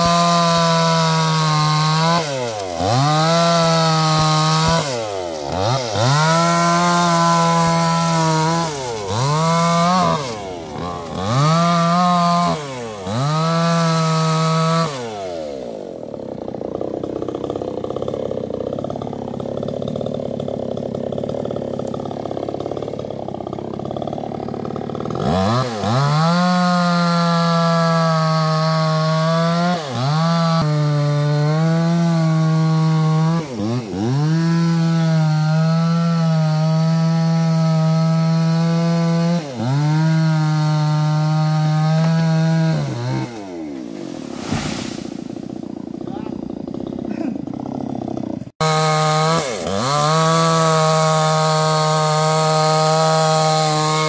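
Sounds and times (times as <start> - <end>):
chainsaw cutting wood: 0.0 - 54.0.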